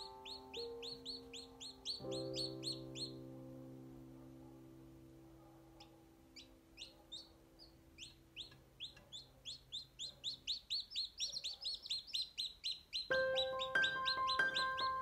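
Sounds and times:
chicks peeping: 0.0s - 3.2s, 5.8s - 15.0s
music: 0.0s - 8.9s, 13.1s - 15.0s.

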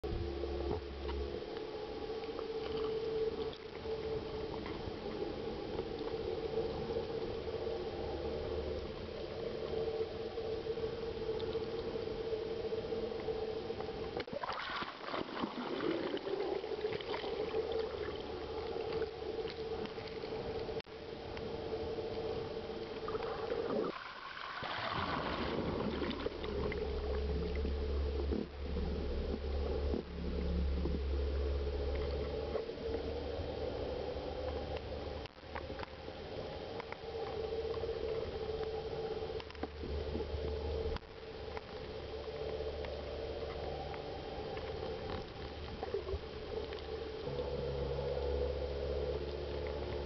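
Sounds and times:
boat engine droning underwater: 0.0s - 50.0s
hiss and bubbling: 0.2s - 50.0s
water rushing: 14.2s - 20.7s, 22.7s - 32.6s.

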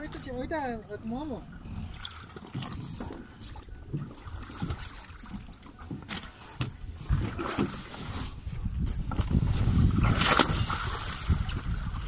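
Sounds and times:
knocking and scraping on boat: 0.0s - 12.0s
water splashing: 0.0s - 12.0s.

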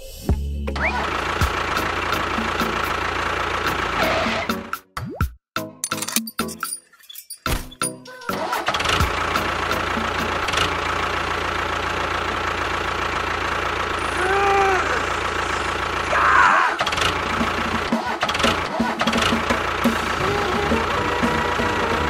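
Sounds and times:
model tractor engine running: 0.8s - 4.5s, 8.4s - 22.0s.

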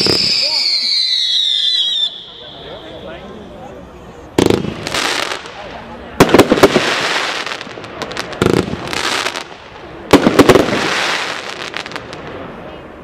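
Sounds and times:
firework bangs: 0.0s - 3.1s, 4.4s - 12.7s
firework hiss: 4.4s - 12.3s.

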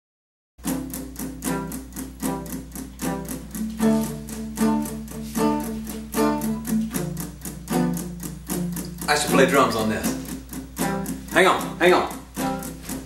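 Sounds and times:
electric guitar strummed: 0.6s - 13.0s.

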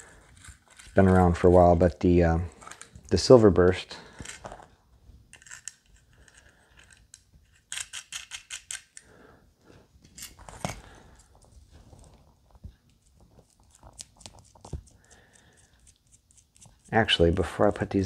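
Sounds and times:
small metal parts clicking and clinking: 0.3s - 1.4s, 5.3s - 9.1s, 10.0s - 11.4s.

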